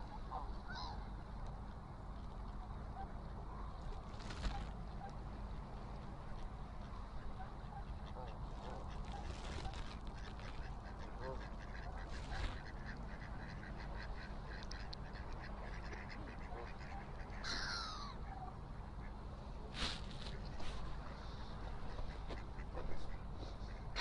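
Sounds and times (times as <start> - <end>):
geese calling: 0.0 - 1.1, 6.9 - 19.2
ducks quacking: 6.9 - 19.2, 20.2 - 24.0.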